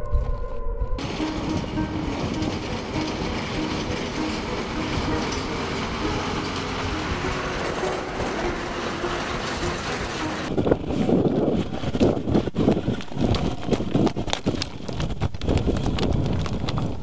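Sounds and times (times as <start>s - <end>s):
truck driving past: 1.0s - 11.9s.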